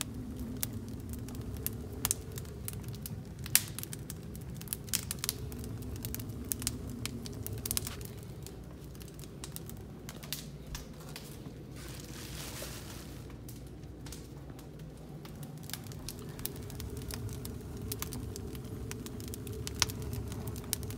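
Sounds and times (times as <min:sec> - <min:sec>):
fire crackling and popping: 0:00.0 - 0:20.9
low fire rumble: 0:00.0 - 0:20.9
plastic bag rustling: 0:11.0 - 0:13.6.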